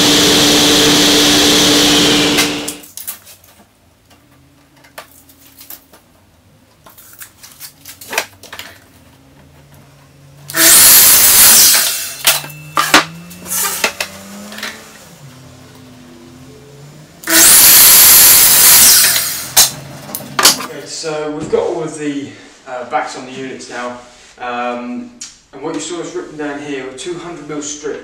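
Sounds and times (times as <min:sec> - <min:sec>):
mitre saw cutting a board: 0:00.0 - 0:02.8, 0:10.5 - 0:12.2, 0:17.2 - 0:19.7
table saw running: 0:00.0 - 0:02.8, 0:10.5 - 0:19.9.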